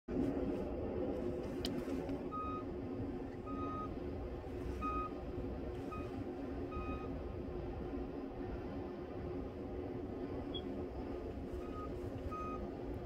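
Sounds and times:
snow plow engine running: 0.1 - 13.0
reversing alarm beeping: 2.3 - 2.7, 3.4 - 4.0, 4.7 - 5.2, 5.8 - 7.2, 11.6 - 12.7.

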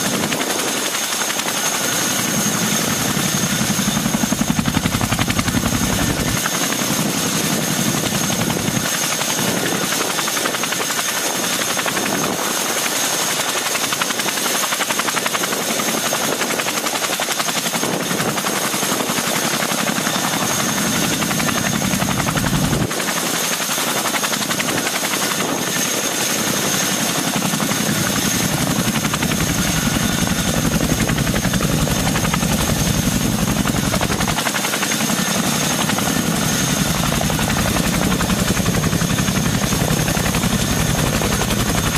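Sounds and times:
helicopter rotor beat: 0.0 - 41.9.

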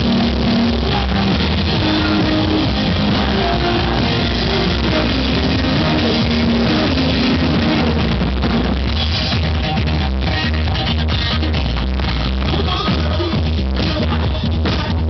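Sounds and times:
synthesizer keyboard: 0.0 - 9.2
drums: 0.0 - 15.0
electric guitar: 0.0 - 15.0
person singing: 0.0 - 15.0.

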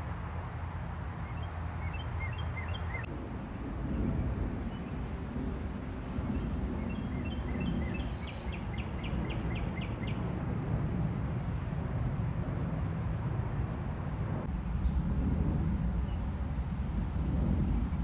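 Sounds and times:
low outdoor rumble: 0.0 - 18.0
small bird singing: 1.2 - 3.1, 6.3 - 10.2.

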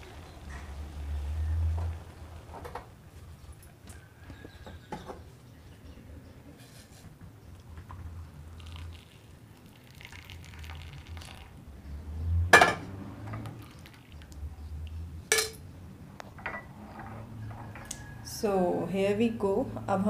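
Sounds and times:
tea pouring into a cup: 8.4 - 11.6, 13.6 - 14.4
dishware knocks: 12.6 - 12.8
sharp clink: 15.3 - 15.6.

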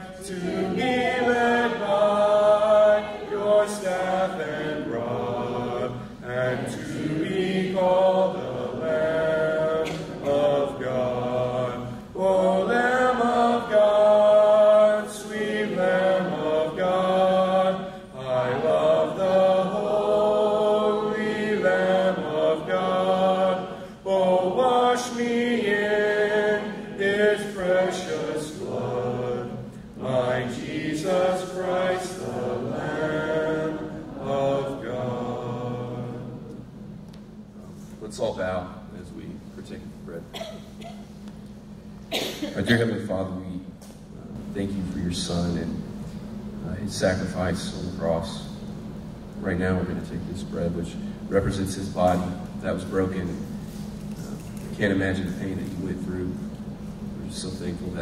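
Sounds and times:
a cappella hymn singing: 0.0 - 36.7.

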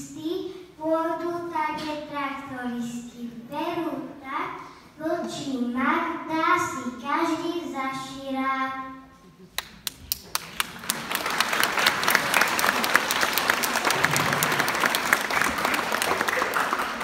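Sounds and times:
audience applauding: 9.6 - 17.0.

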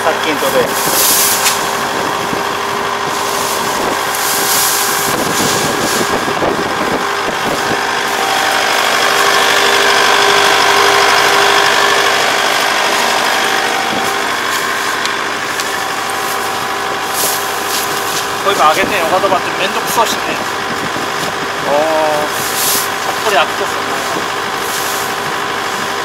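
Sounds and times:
harvester engine running: 0.0 - 26.0
straw rustling and crackling: 0.3 - 2.0, 3.0 - 9.6, 12.6 - 21.4, 22.2 - 25.8.

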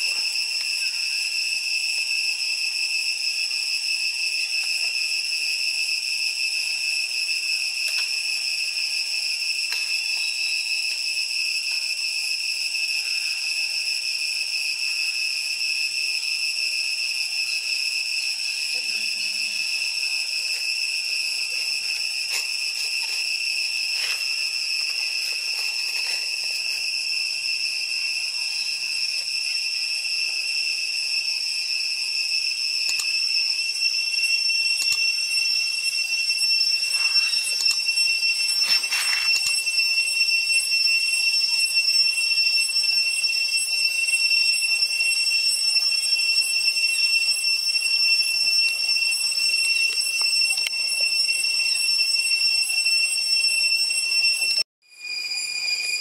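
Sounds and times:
high-pitched insect drone: 0.0 - 56.0.

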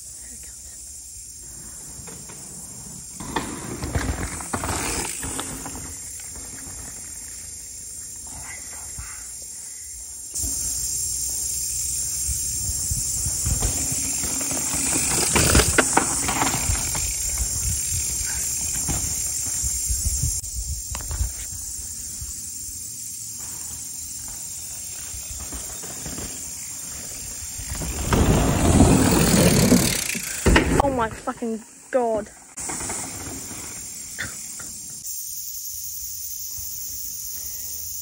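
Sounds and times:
bike tyre noise: 0.8 - 38.0
wind rushing over microphone: 16.5 - 18.4, 19.4 - 22.3.

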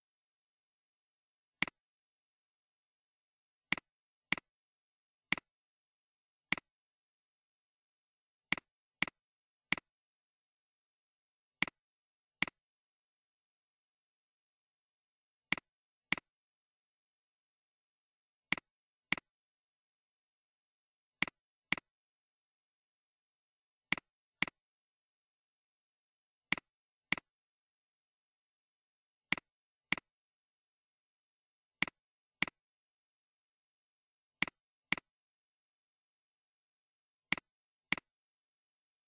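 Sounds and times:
computer mouse clicks: 3.7 - 4.5, 37.3 - 38.2.

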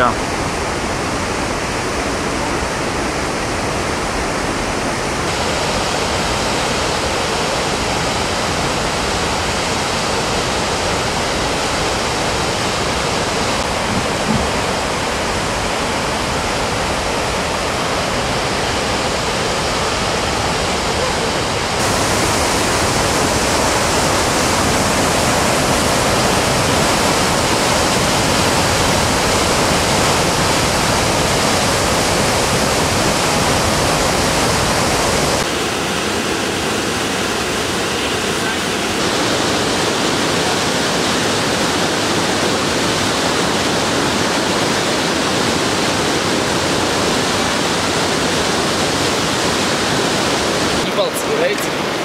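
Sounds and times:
whitewater rapids roaring: 0.0 - 52.0.

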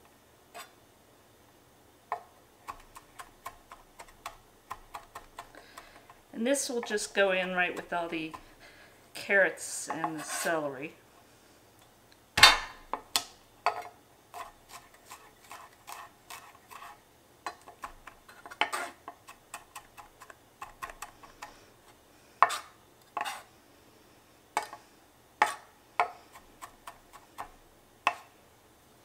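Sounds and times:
knife chopping on wooden board: 22.4 - 23.4, 25.4 - 28.3.

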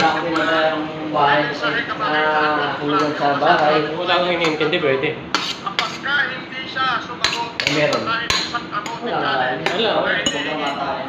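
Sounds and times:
metal spoon clanking on pot: 7.2 - 9.0, 9.6 - 10.9.

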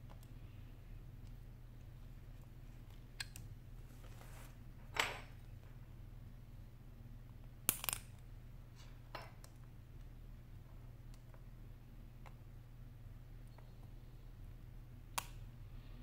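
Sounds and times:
low steady hum: 0.0 - 16.0
tweezers clicking on metal parts: 7.7 - 8.2.

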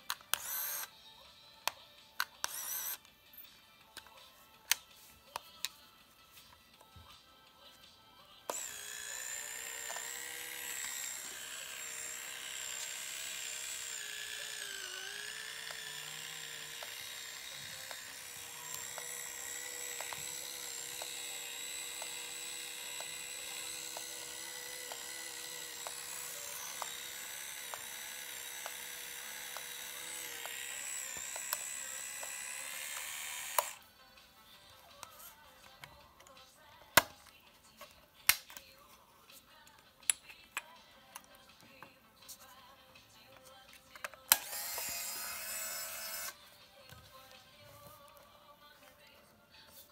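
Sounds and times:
camera motor whining: 0.3 - 0.9, 2.4 - 3.0, 8.5 - 33.8, 44.2 - 46.4.

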